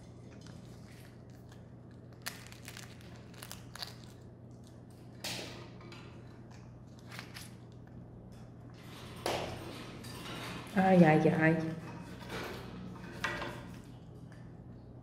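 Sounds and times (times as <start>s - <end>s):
parrot crunching egg shell: 0.0s - 8.0s.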